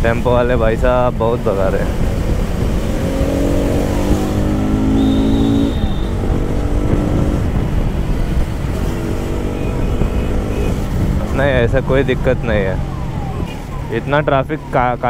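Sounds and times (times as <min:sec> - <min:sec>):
road rumble: 0:00.0 - 0:15.0
wind: 0:00.0 - 0:15.0
motorcycle engine running: 0:01.8 - 0:13.9.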